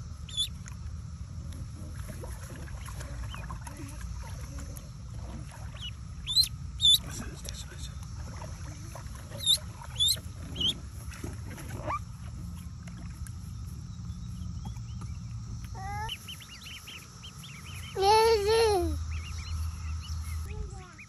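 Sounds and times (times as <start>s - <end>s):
ducklings peeping: 0.0s - 0.7s, 2.2s - 7.6s, 8.2s - 12.4s, 13.0s - 21.0s
child calling out: 15.8s - 16.2s, 18.0s - 19.0s.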